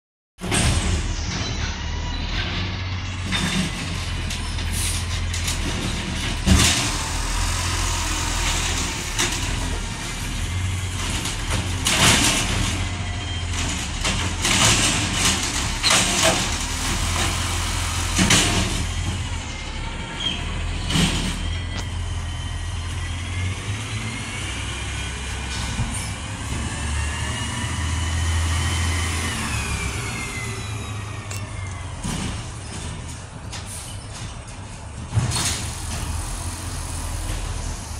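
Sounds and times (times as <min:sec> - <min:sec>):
garbage truck diesel engine rumbling: 0:00.4 - 0:37.9.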